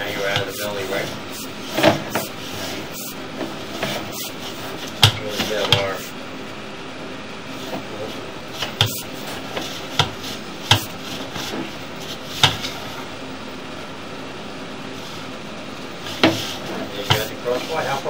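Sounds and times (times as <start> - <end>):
steady background hum: 0.0 - 18.0.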